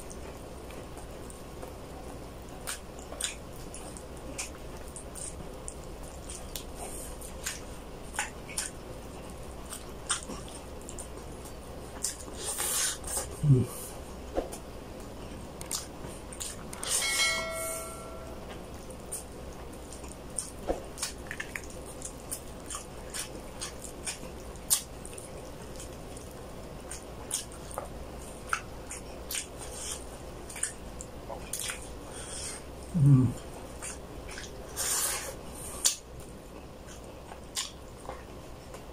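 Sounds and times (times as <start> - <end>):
mouth chewing: 0.0 - 17.0, 18.5 - 38.9
short ringing chime: 16.9 - 18.5.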